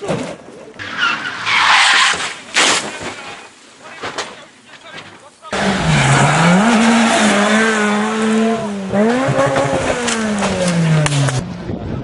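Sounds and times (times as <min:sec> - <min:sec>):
gravel road noise: 0:00.0 - 0:12.0
rally car engine revving: 0:05.5 - 0:11.7.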